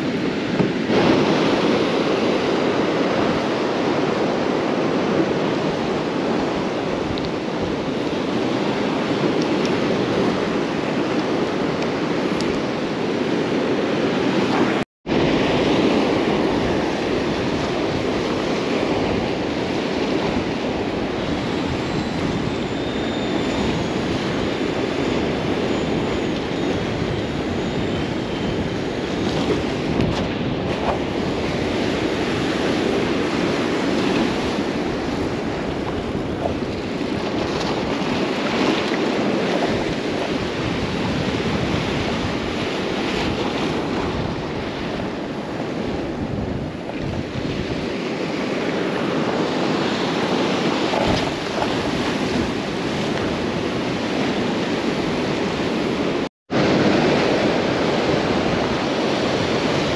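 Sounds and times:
surf washing against rocks: 0:00.0 - 0:59.9
wind buffeting microphone: 0:00.0 - 0:59.9.

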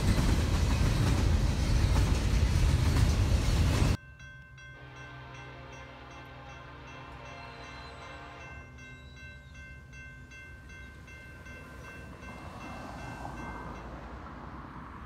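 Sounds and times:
crossing warning bell ringing: 0:03.8 - 0:14.3
train horn: 0:04.8 - 0:08.8.

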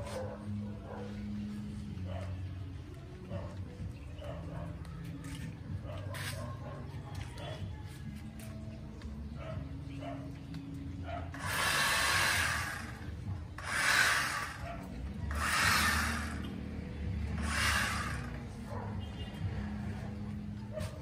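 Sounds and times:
reciprocating saw cutting branches: 0:11.3 - 0:18.5.

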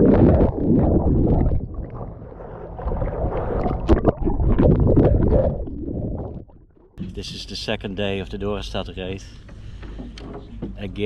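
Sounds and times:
underwater swimming and splashing: 0:00.0 - 0:07.2
small underwater knocks: 0:09.4 - 0:11.0.

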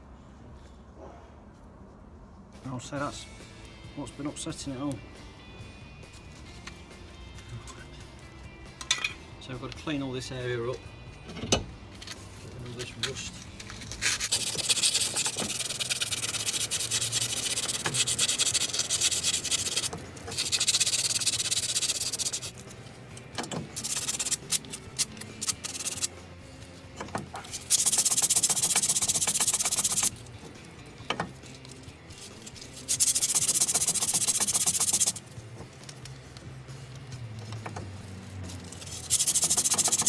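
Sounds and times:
harsh rubbing of rust scrubbing: 0:12.2 - 0:26.2, 0:27.3 - 0:35.8, 0:37.4 - 0:40.0.

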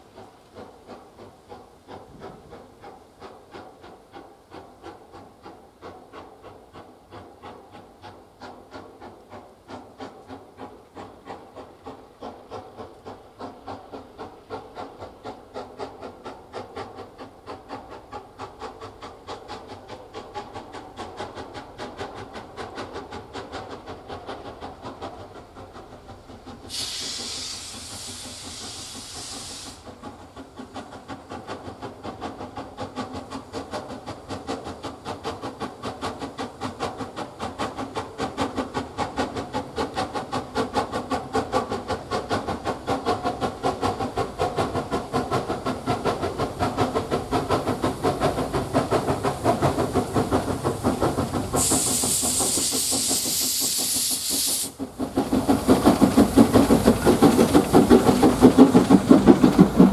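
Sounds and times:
loud hiss of escaping steam: 0:00.0 - 0:59.9
steam locomotive exhaust beating: 0:00.0 - 0:59.9.

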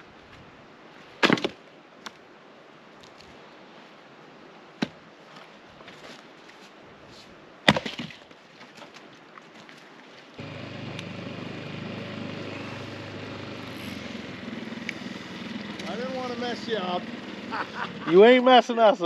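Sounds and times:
outdoor background noise: 0:00.0 - 0:19.0
axe splitting firewood: 0:01.2 - 0:01.6, 0:07.7 - 0:08.2.

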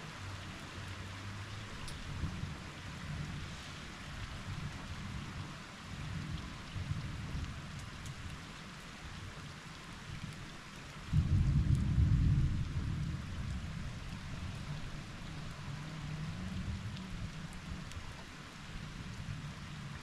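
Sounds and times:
steady rainfall: 0:00.0 - 0:20.0
thunder rumbling: 0:11.1 - 0:14.9.

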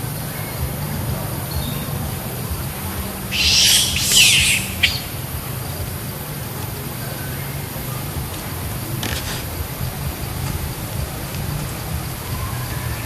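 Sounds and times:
monkeys shrieking: 0:03.1 - 0:05.6.

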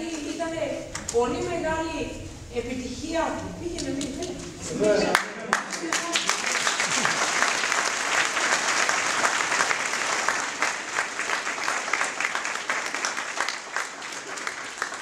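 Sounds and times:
people applauding: 0:03.9 - 0:15.0.

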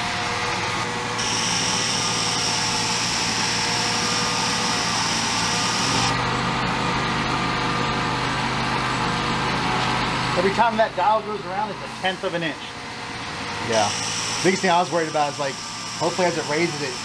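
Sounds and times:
foam gun hissing with whine: 0:00.9 - 0:06.2.

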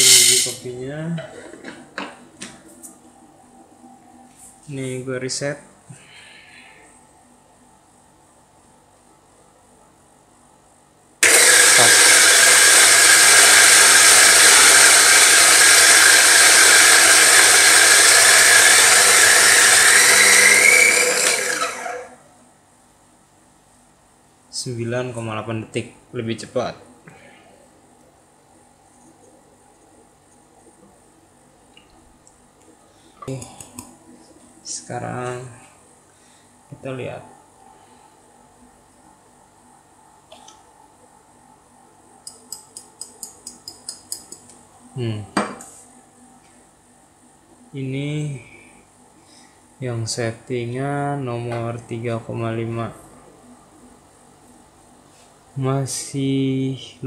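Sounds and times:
motor spinning down: 0:11.2 - 0:22.1
coffee grinder whirring: 0:11.2 - 0:22.2.

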